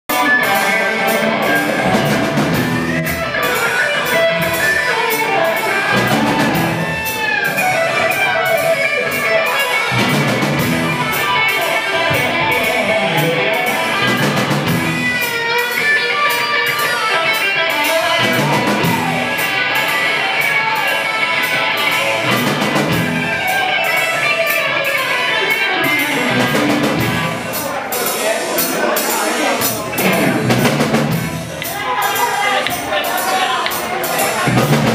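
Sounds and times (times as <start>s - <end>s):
bass guitar: 0.1s - 34.9s
drum kit steady beat: 0.1s - 34.9s
electric guitar: 0.1s - 34.9s.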